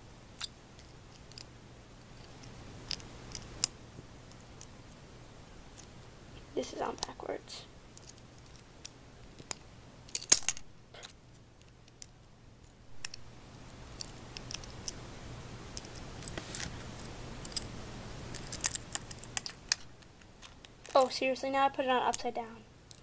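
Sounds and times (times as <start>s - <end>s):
plastic pieces clicking: 18.3s - 21.0s.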